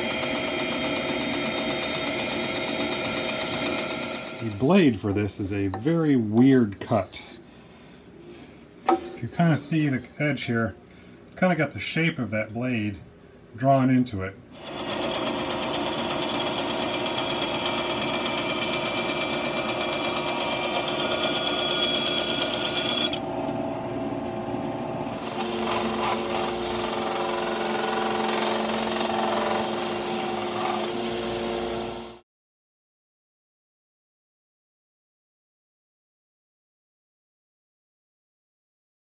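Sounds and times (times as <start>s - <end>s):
bandsaw cutting wood: 0.0s - 4.7s, 14.6s - 23.2s, 25.1s - 32.2s
belt sander humming: 0.0s - 4.7s, 14.6s - 32.2s.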